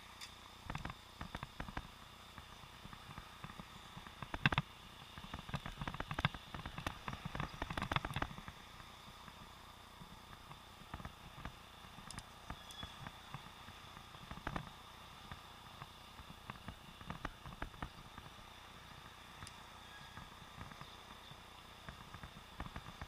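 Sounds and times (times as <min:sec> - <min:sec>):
camera housing knocking and ticking: 0:00.7 - 0:08.6.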